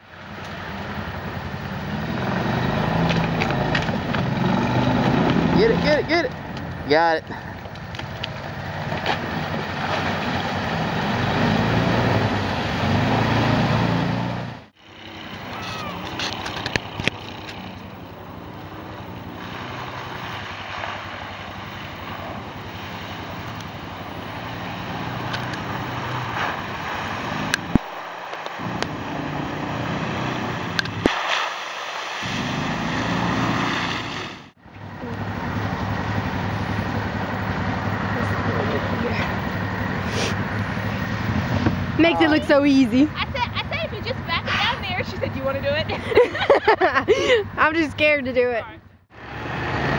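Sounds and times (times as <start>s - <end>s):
small engines running: 14.8s - 27.6s, 34.6s - 49.9s.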